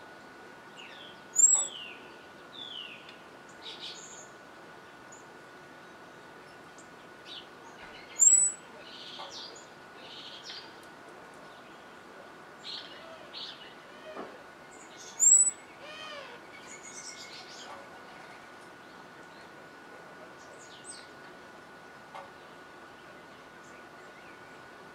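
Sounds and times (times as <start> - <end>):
faint bird chirps: 0.8 - 4.3, 6.5 - 10.8, 14.7 - 19.5.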